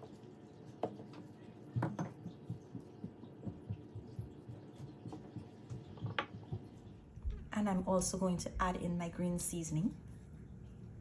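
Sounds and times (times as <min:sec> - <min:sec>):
plastic spoon tapping: 0:01.8 - 0:06.7.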